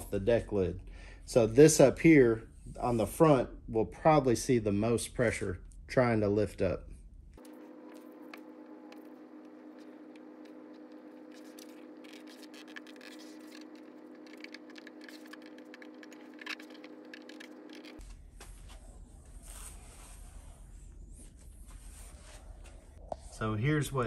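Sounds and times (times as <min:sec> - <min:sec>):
steady hum: 0:07.0 - 0:19.4
tape scratching and tearing: 0:07.4 - 0:18.0.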